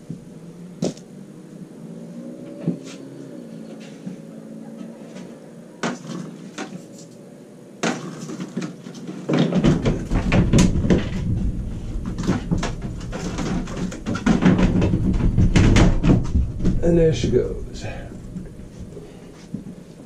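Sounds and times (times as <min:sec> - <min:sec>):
low handling rumble: 0:09.7 - 0:20.0.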